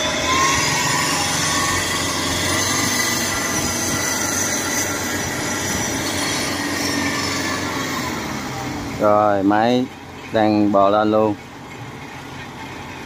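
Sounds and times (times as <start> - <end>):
diesel engine under load: 0.0 - 13.0
high steady whining tones: 0.0 - 13.0.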